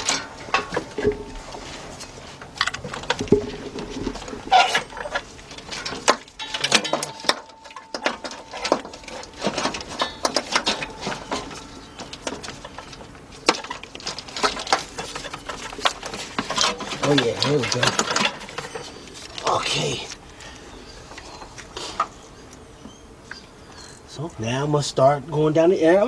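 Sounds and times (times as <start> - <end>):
plastic and metal parts clattering: 0.0 - 20.2.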